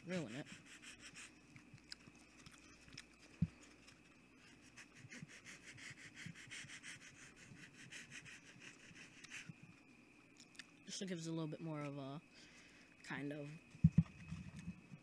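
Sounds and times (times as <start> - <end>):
sanding foam board: 0.1 - 1.3, 4.7 - 9.5.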